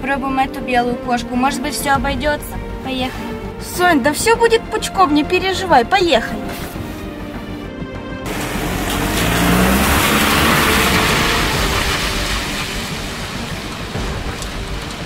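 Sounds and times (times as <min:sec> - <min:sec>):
van engine accelerating: 0:06.5 - 0:15.0
tyres hissing on wet asphalt: 0:08.3 - 0:15.0.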